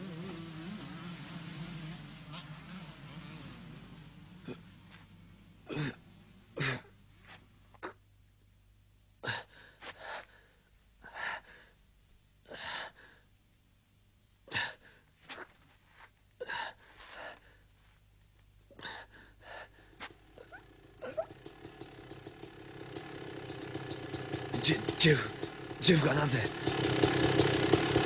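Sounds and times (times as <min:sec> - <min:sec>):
man gasping for breath: 0:09.2 - 0:11.8, 0:18.7 - 0:20.1.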